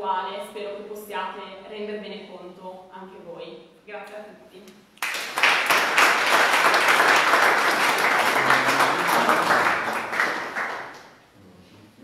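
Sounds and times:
people applauding: 0:05.0 - 0:11.1.

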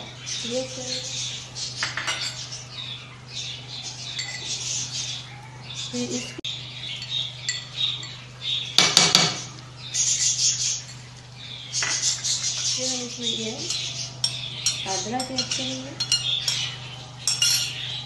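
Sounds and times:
steady low hum: 0:00.0 - 0:18.0
utensil scraping and clinking pan: 0:13.6 - 0:17.8.

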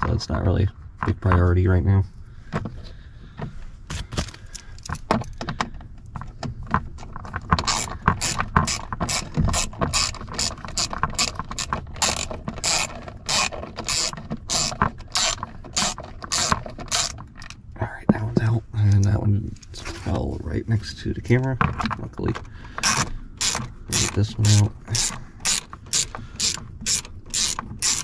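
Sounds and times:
hand ratchet clicking: 0:07.6 - 0:17.6, 0:22.8 - 0:28.0.

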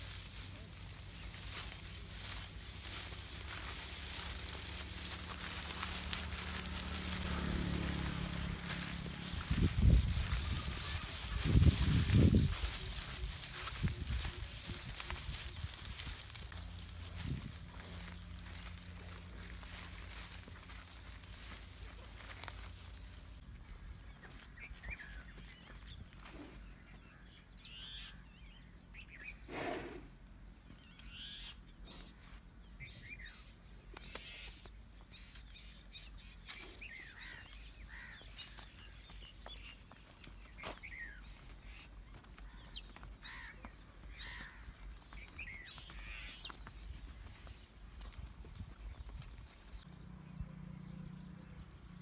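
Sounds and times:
low outdoor rumble: 0:00.0 - 0:27.3
birds chirping: 0:00.0 - 0:29.8, 0:30.5 - 0:52.0.

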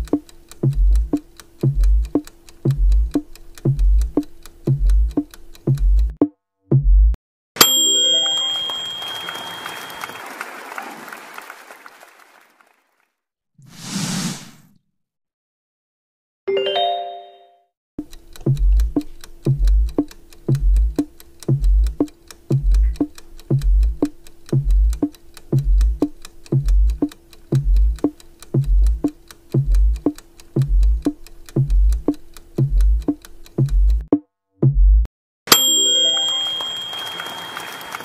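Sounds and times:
timer ticking with deep thump: 0:00.0 - 0:07.2, 0:18.0 - 0:35.1
short chime: 0:07.6 - 0:10.3, 0:35.5 - 0:38.0.

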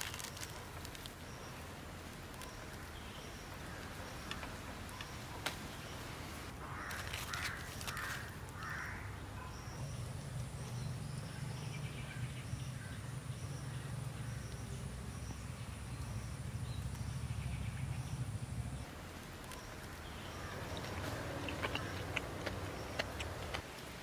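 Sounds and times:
crow cawing: 0:06.6 - 0:09.1.

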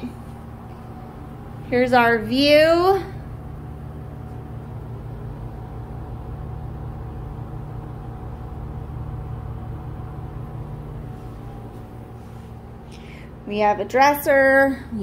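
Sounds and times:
air conditioner humming: 0:00.0 - 0:15.0.

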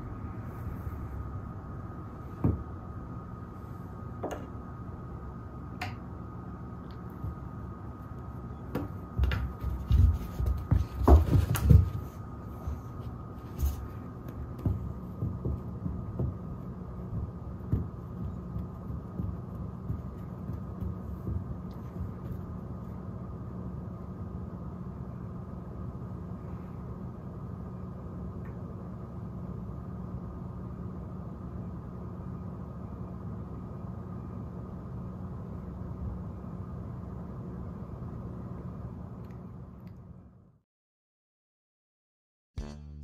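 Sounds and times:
faint steady hum: 0:00.0 - 0:40.6
cat pouncing on a rug: 0:08.8 - 0:12.2, 0:13.6 - 0:22.4.

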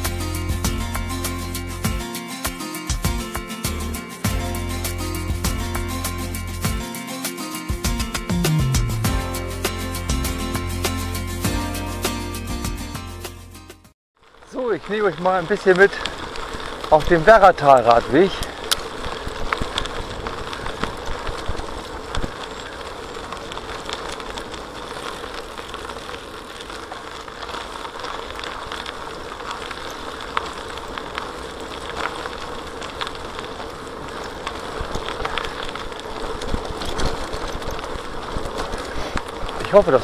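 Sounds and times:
bicycle tyre rumble on gravel: 0:00.0 - 0:12.0, 0:14.2 - 0:40.0
small clicks from stones: 0:14.2 - 0:40.0.

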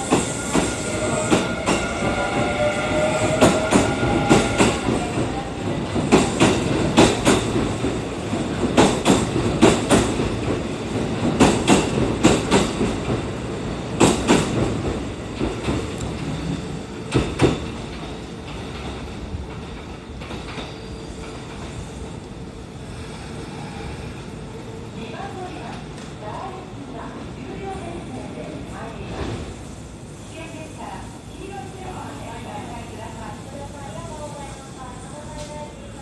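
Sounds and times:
train whine: 0:00.0 - 0:25.1
train rumble: 0:00.0 - 0:36.0
train wheels clacking on rail joints: 0:08.6 - 0:13.2.

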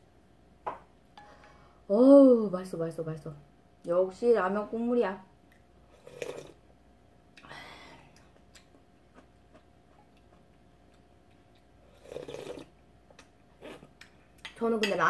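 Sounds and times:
slurping broth from spoon: 0:05.9 - 0:06.6, 0:11.8 - 0:12.7
faint chewing: 0:08.1 - 0:14.5.

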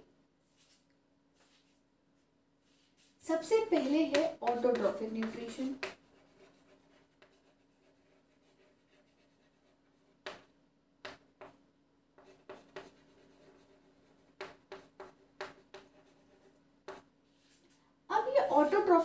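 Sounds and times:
faint steady hum: 0:00.0 - 0:19.0
pen writing strokes: 0:03.6 - 0:11.6, 0:12.2 - 0:17.1.

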